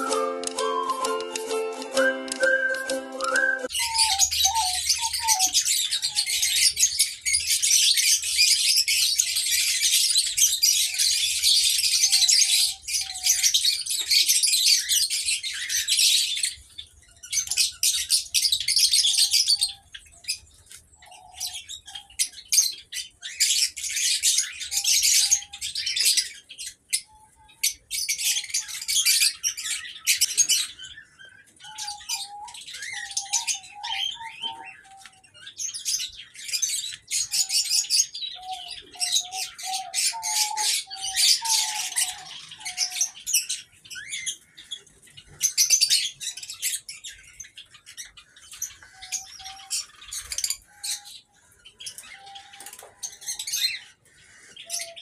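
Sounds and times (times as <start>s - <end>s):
small birds chirping and chattering: 0.0s - 55.0s
low whistled bird notes: 1.9s - 6.6s.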